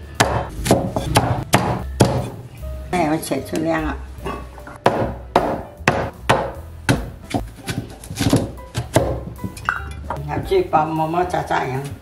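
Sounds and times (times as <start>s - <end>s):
knife chopping: 0.2s - 2.4s, 4.8s - 9.6s.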